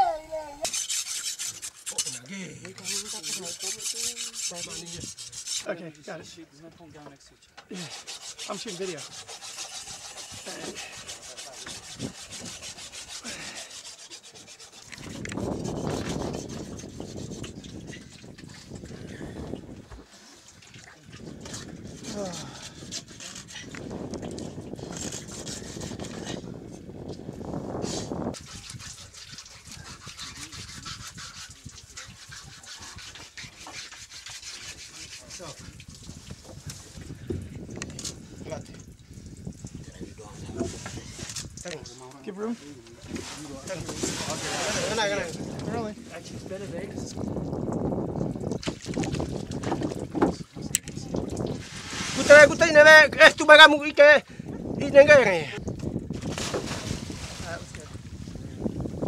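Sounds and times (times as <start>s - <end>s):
blade sawing through skin: 0.6s - 5.7s, 7.7s - 18.0s, 21.8s - 23.8s, 24.8s - 26.4s, 27.8s - 35.8s.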